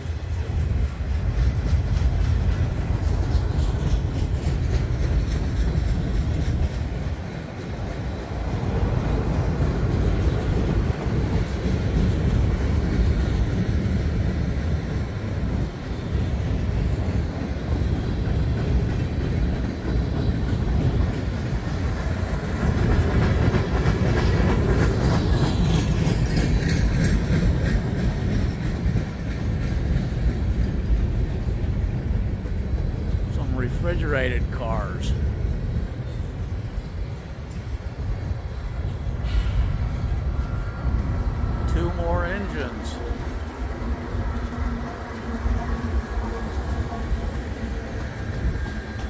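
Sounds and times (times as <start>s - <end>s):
rhythmic wheel clatter: 0.0s - 14.9s
train wheels rumbling on rails: 0.0s - 49.0s.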